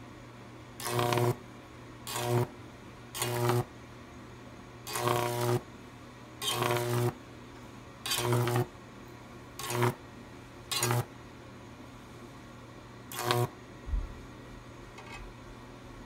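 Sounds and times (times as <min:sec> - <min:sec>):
mains hum: 0:00.0 - 0:16.0
electric arc buzzing crackle: 0:00.8 - 0:01.4, 0:02.0 - 0:03.7, 0:04.8 - 0:05.7, 0:06.4 - 0:07.2, 0:08.0 - 0:08.7, 0:09.6 - 0:10.0, 0:10.7 - 0:11.1, 0:13.1 - 0:13.6.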